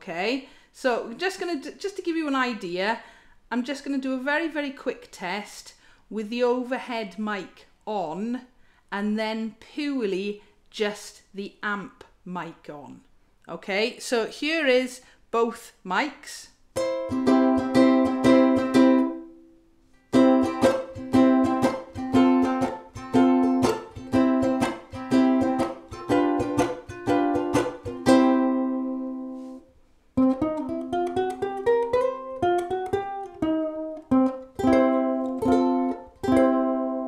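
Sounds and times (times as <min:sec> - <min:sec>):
ukulele strummed chords: 0:16.8 - 0:19.5, 0:20.1 - 0:29.6, 0:30.2 - 0:37.0
picked ukulele melody: 0:16.8 - 0:29.6, 0:30.2 - 0:37.0.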